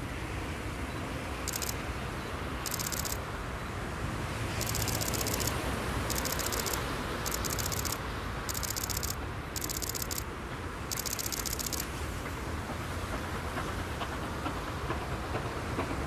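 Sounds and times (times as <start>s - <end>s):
high fast clicking chatter: 1.5s - 1.8s, 2.7s - 3.2s, 4.6s - 10.3s, 10.9s - 11.9s
distant steam train rushing: 8.6s - 16.0s.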